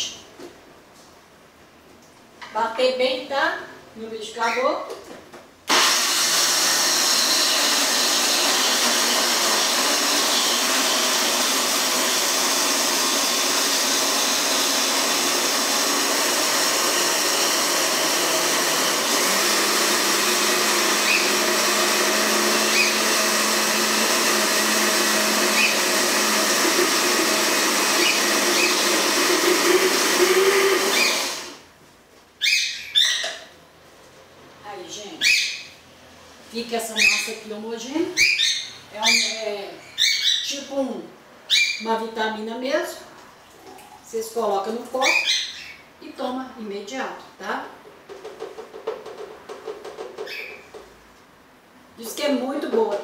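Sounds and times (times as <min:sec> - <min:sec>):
electric blender running: 0:05.7 - 0:31.6.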